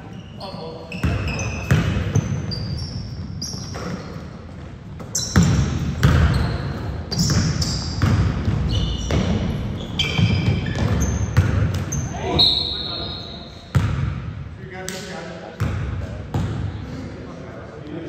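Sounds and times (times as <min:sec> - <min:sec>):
sneakers squeaking on floor: 0:00.0 - 0:14.0
basketball bouncing on gym court: 0:00.9 - 0:12.2, 0:13.7 - 0:14.3, 0:15.6 - 0:16.7.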